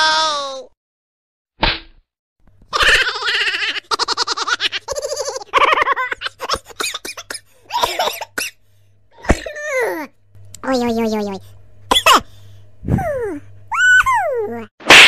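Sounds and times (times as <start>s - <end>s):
high-pitched human laughter: 2.7s - 6.8s.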